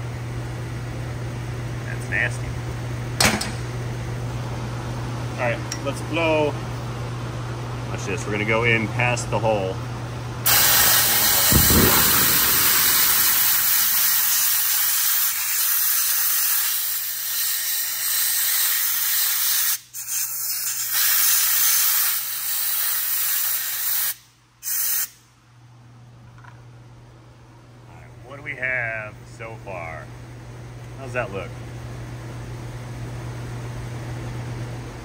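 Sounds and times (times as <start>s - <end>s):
compressed-air blow gun hissing: 10.5s - 25.2s.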